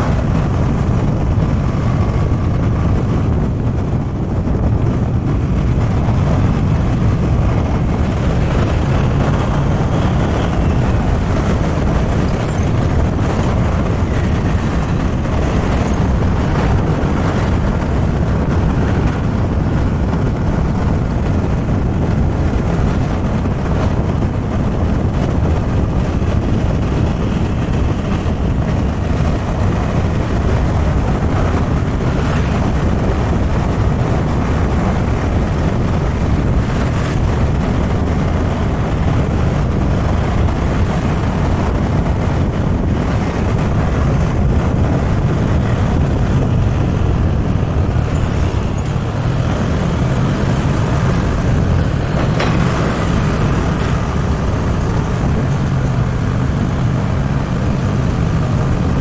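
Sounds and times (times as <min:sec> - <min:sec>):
road noise: 0:00.0 - 0:59.0
wind buffeting microphone: 0:00.0 - 0:59.0.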